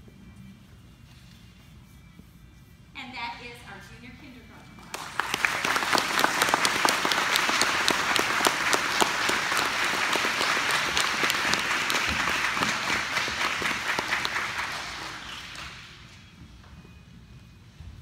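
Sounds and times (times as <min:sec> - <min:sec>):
audience applauding: 0:04.9 - 0:16.1.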